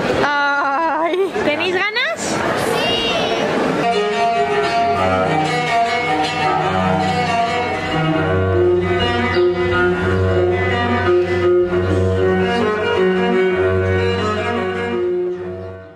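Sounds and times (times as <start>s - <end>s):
slow bowed cello notes: 3.8s - 15.9s
low bass line: 3.9s - 15.9s.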